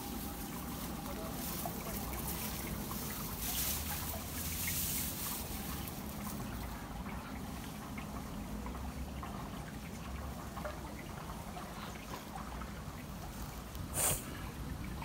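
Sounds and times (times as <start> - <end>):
reeds and grass rustling: 0.0 - 7.7.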